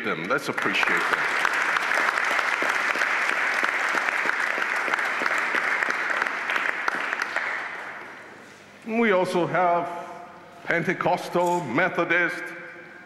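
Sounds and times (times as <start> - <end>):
crowd applauding: 0.0 - 8.2.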